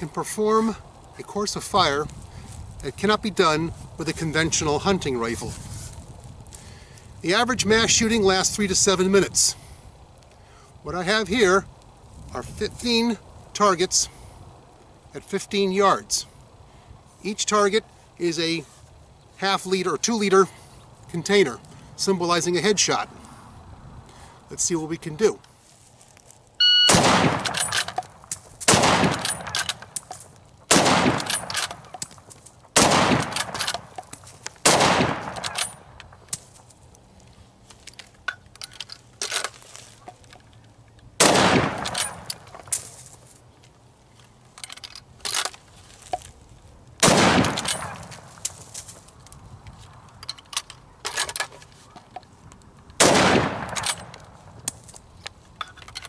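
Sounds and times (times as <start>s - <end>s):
rifle shots with echo: 26.8s - 27.9s, 28.7s - 29.8s, 30.7s - 31.8s, 32.8s - 33.9s, 34.6s - 35.8s, 41.2s - 42.3s, 47.0s - 48.3s, 53.0s - 54.1s.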